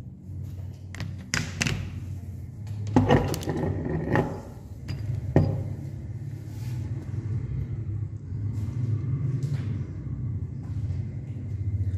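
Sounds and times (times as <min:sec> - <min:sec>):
steady low hum: 0:00.0 - 0:11.9
metal parts clinking and knocking: 0:03.0 - 0:05.8.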